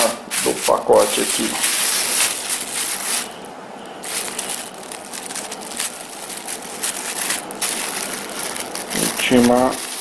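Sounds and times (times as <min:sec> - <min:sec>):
plastic bag crinkling: 0:00.3 - 0:10.0.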